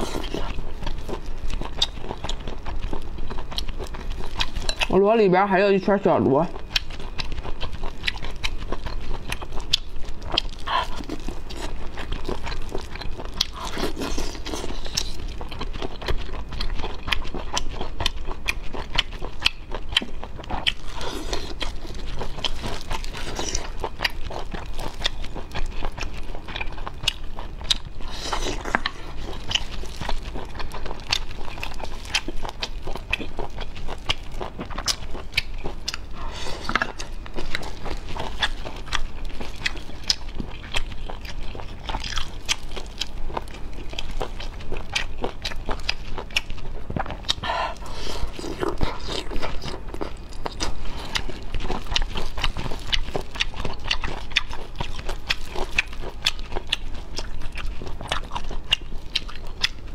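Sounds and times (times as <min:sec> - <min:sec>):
chewing: 0:00.0 - 0:05.0, 0:06.5 - 0:59.9
slurping snails from shells: 0:10.2 - 0:18.0, 0:20.7 - 0:57.2.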